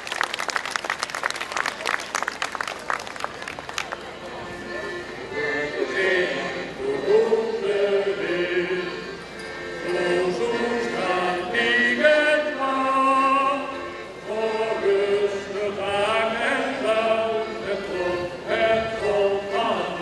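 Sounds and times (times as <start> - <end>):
group of voices singing: 5.3 - 9.1, 9.8 - 13.7, 14.3 - 20.0.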